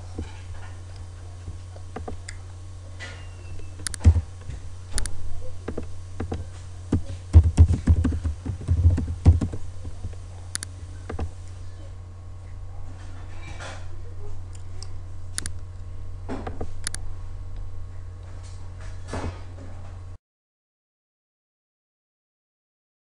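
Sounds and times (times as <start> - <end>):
low electrical hum: 0.0 - 20.2
mouse clicks: 3.8 - 4.2, 10.5 - 11.3
computer keyboard typing: 5.7 - 9.6.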